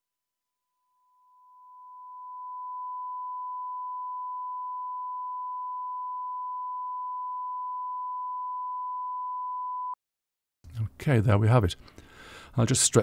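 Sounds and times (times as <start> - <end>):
sine wave test tone: 0.0 - 10.0.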